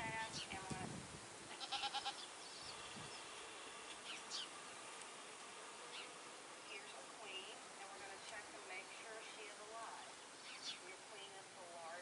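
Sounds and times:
goats bleating: 1.5s - 2.3s.

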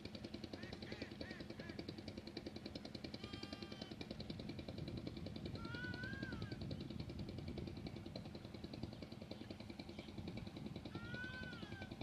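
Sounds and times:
animal call: 3.2s - 4.0s, 5.6s - 6.6s, 10.9s - 12.0s.

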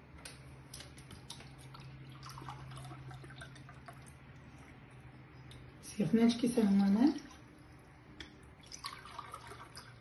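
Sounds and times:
water pouring into a glass: 1.7s - 4.2s, 8.4s - 10.0s.

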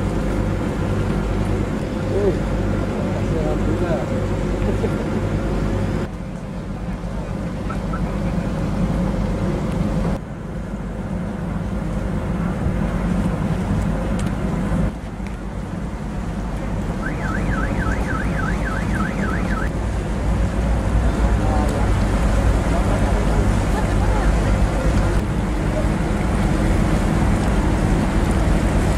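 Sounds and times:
tugboat engine rumble: 0.0s - 28.9s
water: 0.0s - 28.9s
wind: 0.0s - 28.9s
high warbling tone: 17.0s - 19.7s.

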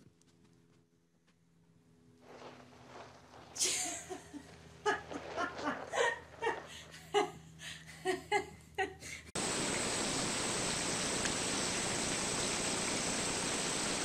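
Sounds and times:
steady rushing hiss: 2.0s - 7.6s, 9.4s - 14.0s
person laughing: 3.6s - 9.3s.

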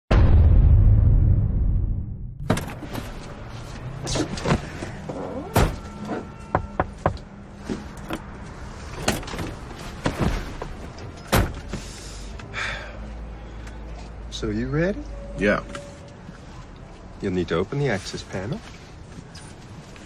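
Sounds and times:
deep boom: 0.1s - 2.5s.

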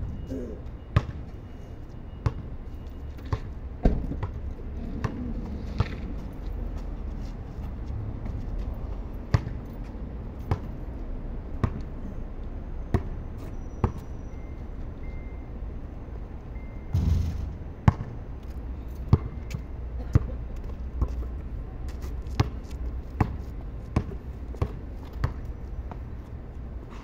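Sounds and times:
basketball bouncing on court: 1.0s - 1.2s, 2.2s - 2.5s, 9.3s - 9.6s, 11.6s - 11.9s, 12.9s - 13.1s, 17.0s - 18.2s, 19.1s - 19.4s, 22.4s - 22.6s, 23.2s - 25.4s.

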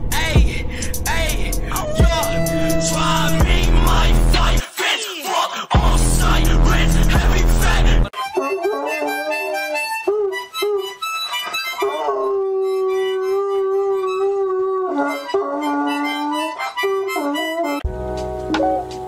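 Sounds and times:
loud music: 0.1s - 4.6s, 5.8s - 8.5s, 17.8s - 19.0s
harmonica chords: 0.7s - 4.6s, 5.8s - 19.0s
dog howling: 1.7s - 4.5s, 8.4s - 17.8s.

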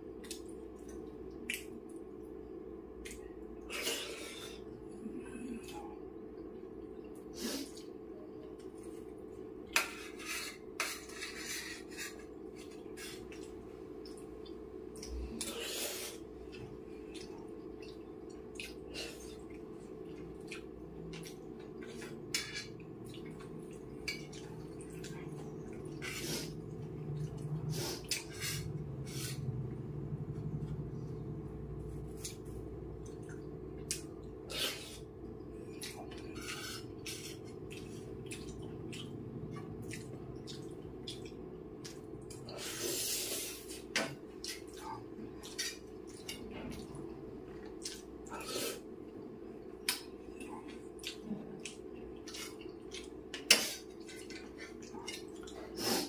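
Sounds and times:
chewing mouth sounds: 37.0s - 42.5s, 49.8s - 55.8s.

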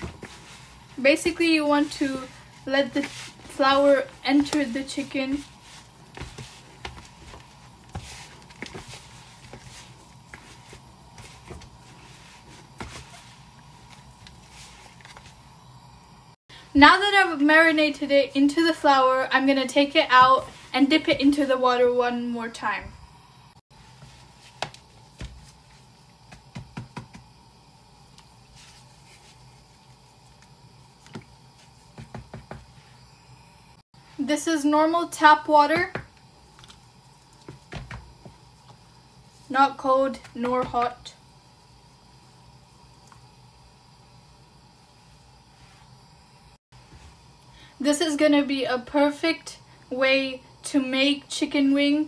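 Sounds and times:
flour rustling: 0.0s - 15.6s, 28.2s - 33.0s.

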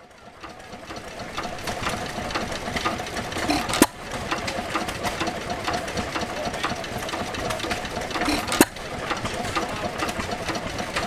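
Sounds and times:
stationary gas engine running: 0.0s - 11.0s
rapid even clicking: 0.4s - 11.0s
engine firing pop: 8.2s - 8.8s.

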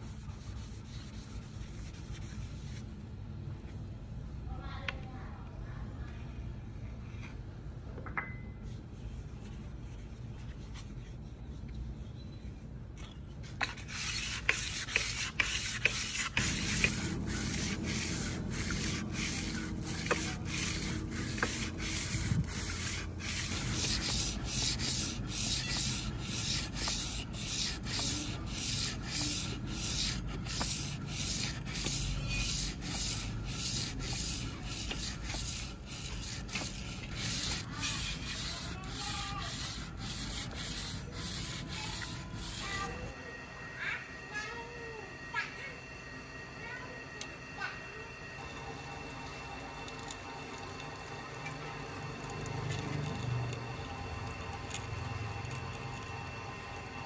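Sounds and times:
abrasive rubbing by hand: 13.6s - 43.1s.

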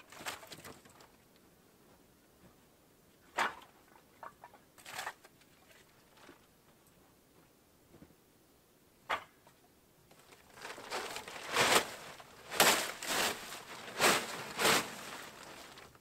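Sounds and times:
tarp crinkling and rustling: 0.0s - 1.1s, 10.1s - 16.0s.

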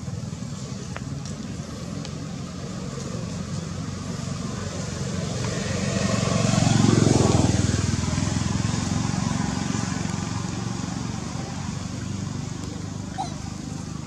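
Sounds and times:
vehicle engine passing by: 1.8s - 14.0s.

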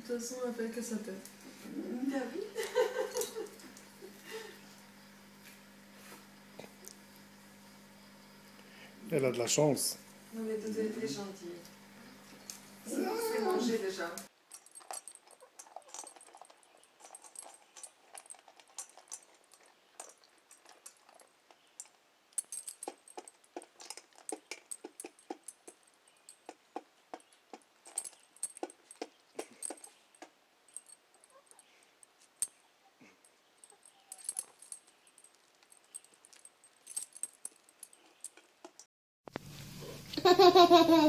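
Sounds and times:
kibble clinking in metal bowl: 14.5s - 32.6s, 33.6s - 38.9s.

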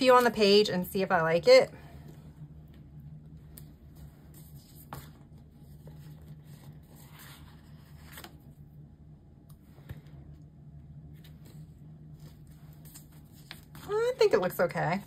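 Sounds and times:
low steady hum: 0.0s - 15.0s
paper rustling: 3.5s - 8.6s, 11.2s - 15.0s.

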